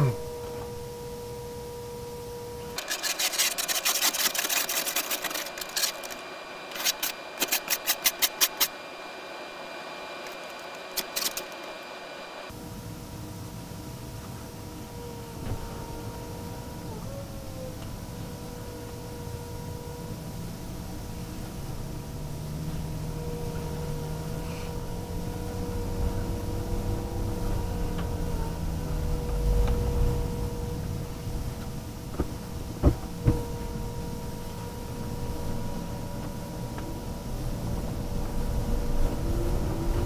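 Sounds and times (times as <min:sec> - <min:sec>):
faint high whine: 0:00.0 - 0:40.0
car rolling rumble: 0:20.8 - 0:40.0.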